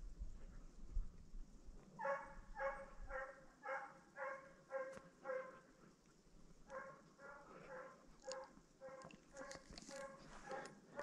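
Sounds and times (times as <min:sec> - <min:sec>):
hound baying: 0:02.0 - 0:05.6, 0:06.7 - 0:11.0.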